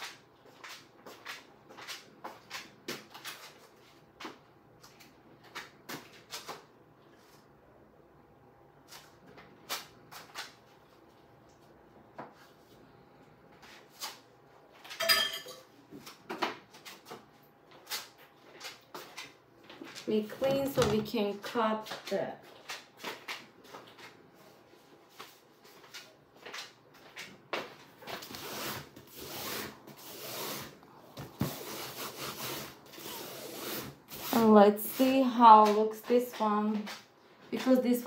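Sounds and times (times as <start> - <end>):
objects clattering: 14.8 - 15.7.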